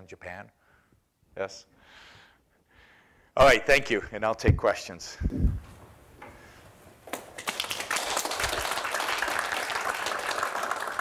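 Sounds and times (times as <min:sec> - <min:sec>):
audience applauding: 0:07.3 - 0:11.0.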